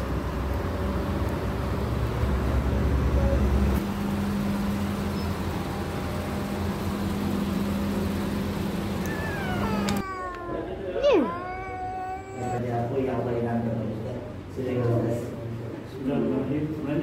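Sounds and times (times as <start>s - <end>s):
road traffic: 0.0s - 12.6s.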